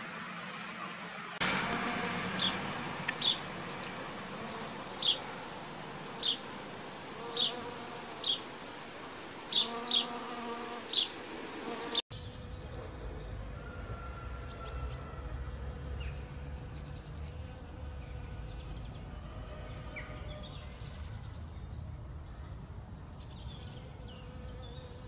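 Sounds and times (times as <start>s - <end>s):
bee buzzing in flight: 1.4s - 12.8s.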